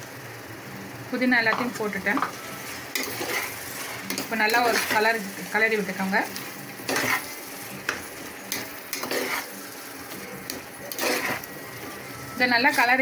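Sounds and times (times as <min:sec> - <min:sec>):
faint sizzle: 0:00.0 - 0:13.0
metal spoon scraping a pot: 0:02.8 - 0:05.1, 0:06.3 - 0:09.6, 0:10.5 - 0:11.5.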